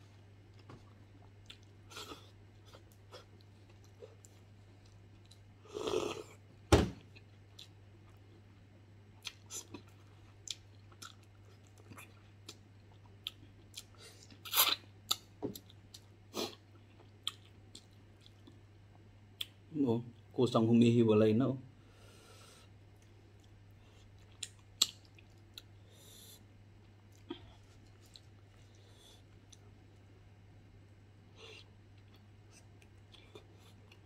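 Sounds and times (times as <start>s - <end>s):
wet chewing and smacks: 0.5s - 5.5s, 15.1s - 19.6s, 22.9s - 25.8s, 26.8s - 29.8s.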